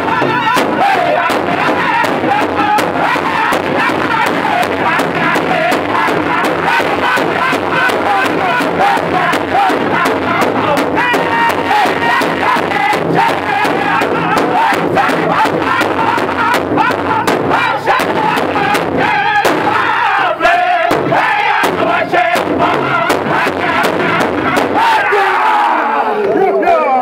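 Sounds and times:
large drum steady beat: 0.0 - 25.4
group singing in high voices: 0.0 - 26.4.

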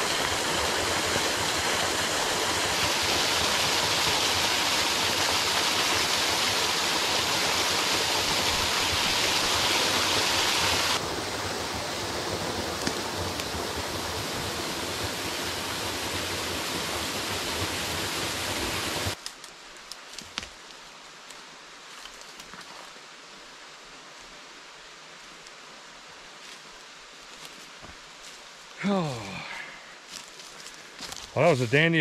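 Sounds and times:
waterfall pouring over rocks: 0.0 - 19.2, 28.8 - 29.6
light rustles and ticks: 19.2 - 22.9.

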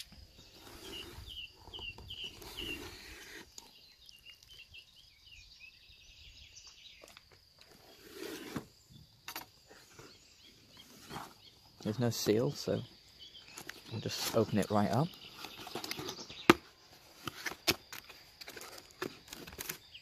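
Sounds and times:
bird chirping: 0.0 - 20.0
cardboard box rustling: 15.3 - 20.0.

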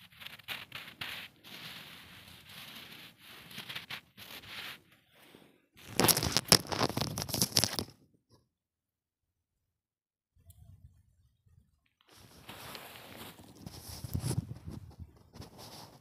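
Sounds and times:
snow crunching under hand: 0.0 - 4.9, 12.2 - 14.4.

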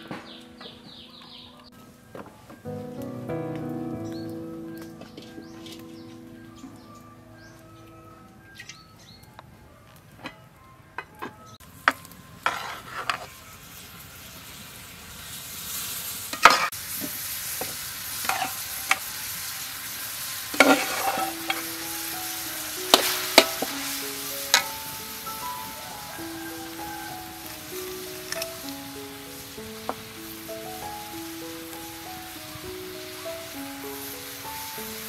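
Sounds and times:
frying sizzle: 0.0 - 9.4, 11.6 - 35.0
soft melodic music: 0.0 - 13.3, 20.2 - 35.0
metal spatula scraping wok: 12.4 - 13.4, 16.3 - 16.7, 18.2 - 19.1, 20.5 - 24.8.

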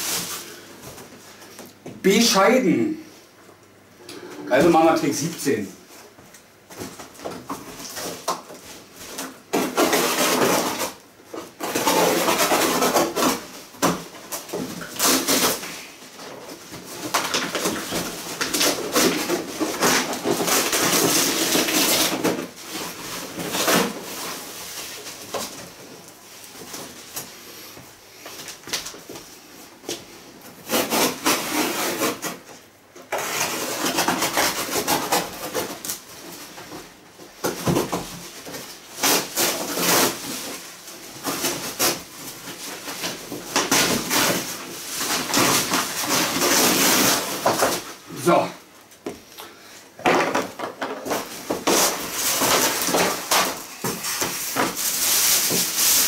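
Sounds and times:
cardboard rubbing and scraping: 7.0 - 25.9, 30.0 - 48.4, 51.0 - 56.0
packing rustling: 50.4 - 56.0.

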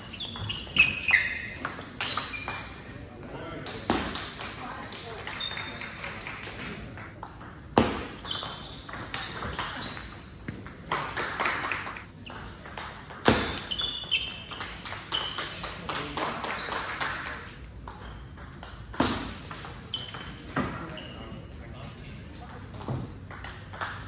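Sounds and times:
shoes squeaking on floor: 0.0 - 2.9, 8.0 - 10.6, 12.2 - 15.6, 19.8 - 21.6, 22.7 - 23.4.

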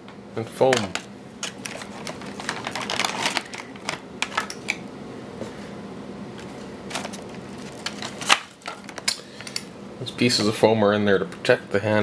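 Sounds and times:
plastic packaging crinkling: 0.8 - 4.8, 6.9 - 9.1.

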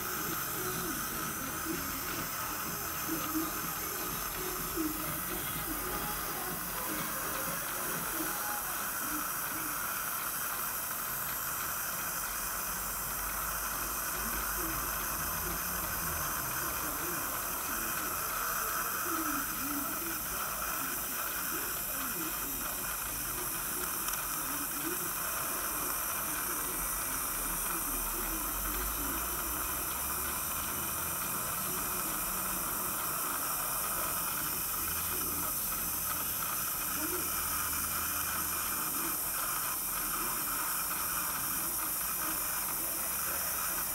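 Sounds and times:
saliva ejector hissing: 0.0 - 43.9.

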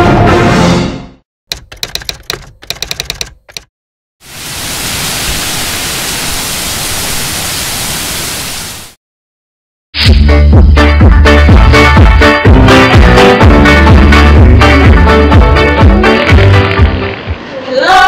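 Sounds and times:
rapid clicks: 1.5 - 3.7
loud bass-heavy music: 10.0 - 17.1.

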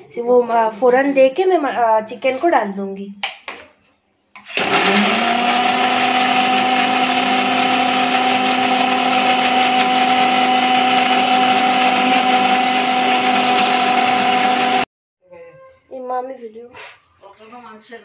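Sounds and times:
mixer grinder motor hum: 4.4 - 14.9.

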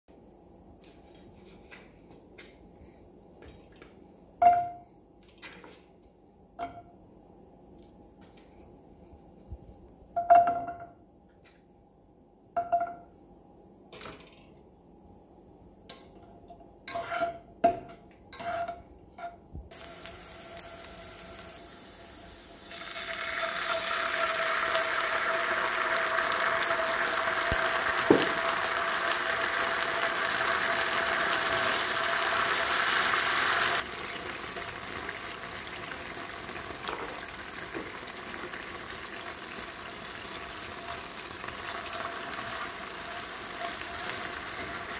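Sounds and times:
oil sizzling in a pan: 19.7 - 44.9.

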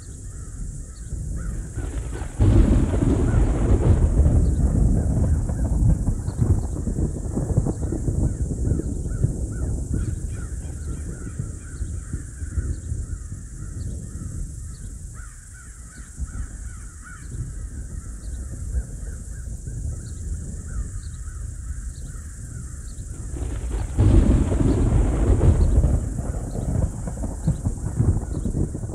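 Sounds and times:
distant thunder rumbling: 0.0 - 28.9
crows cawing: 0.2 - 4.6, 7.9 - 18.2.

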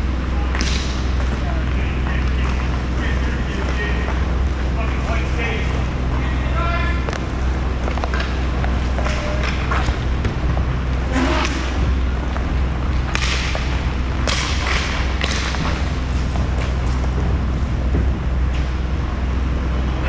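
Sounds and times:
steady low rumble: 0.0 - 20.0
sticks and puck clacking: 0.5 - 5.8, 7.0 - 17.4.

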